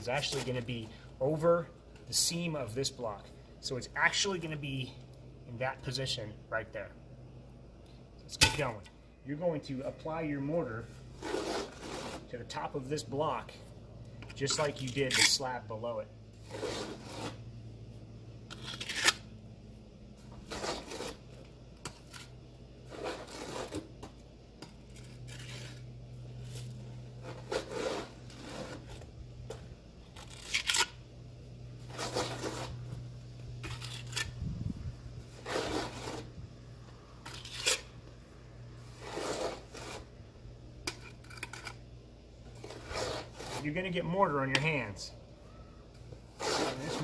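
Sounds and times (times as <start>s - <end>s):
trowel scraping and slapping mortar: 0.0s - 0.8s, 11.2s - 12.6s, 16.4s - 17.4s, 18.5s - 19.3s, 20.3s - 31.0s, 31.9s - 32.9s, 33.6s - 34.4s, 35.3s - 36.4s, 37.2s - 37.9s, 38.8s - 40.1s, 42.6s - 44.9s, 46.3s - 47.0s
steady low hum: 0.0s - 47.0s.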